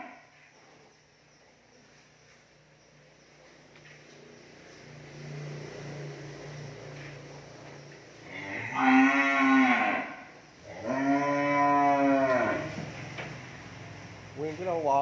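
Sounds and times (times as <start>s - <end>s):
cow mooing: 8.3s - 12.8s.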